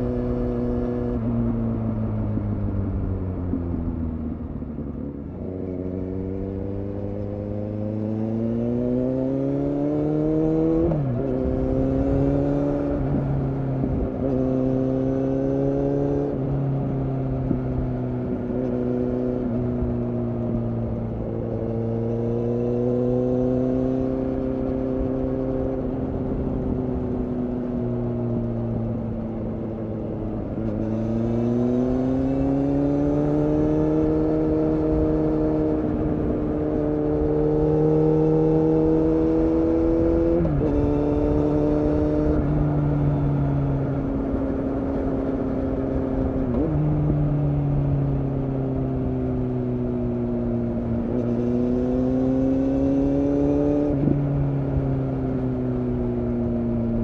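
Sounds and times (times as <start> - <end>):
motorcycle engine revving: 5.1 - 57.0.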